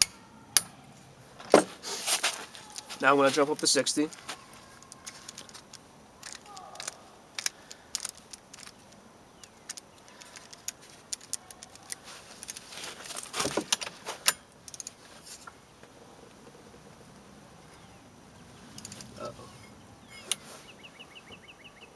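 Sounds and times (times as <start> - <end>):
ratcheting torque wrench clicks: 4.8 - 12.6, 13.7 - 14.9.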